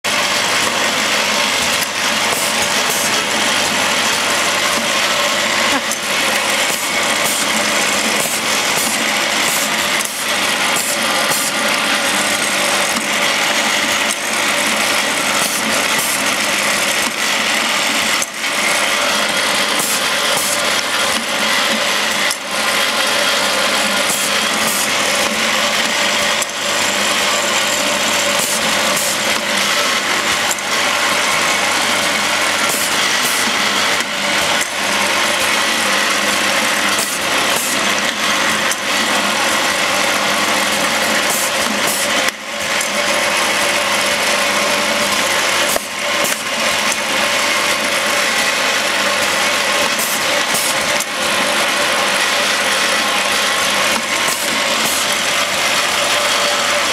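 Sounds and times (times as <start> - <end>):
capping machine clatter: 0.0 - 56.9.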